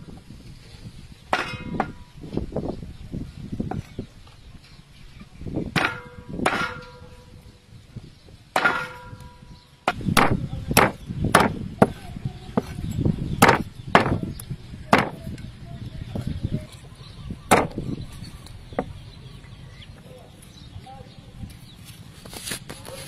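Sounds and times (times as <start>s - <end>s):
cleaver chopping on wooden block: 5.8s - 6.9s, 9.9s - 12.0s, 13.4s - 14.3s, 14.9s - 15.2s, 17.5s - 17.8s.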